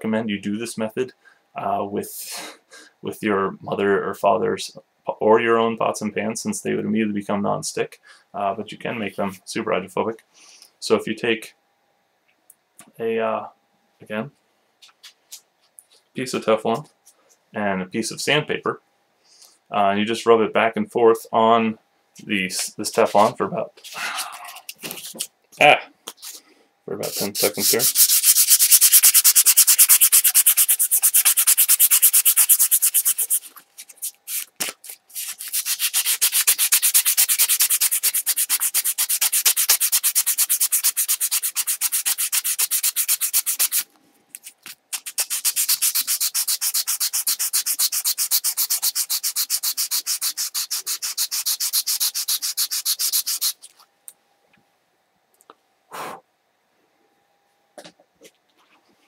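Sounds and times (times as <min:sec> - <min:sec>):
sandpaper scratching: 0:27.0 - 0:53.8.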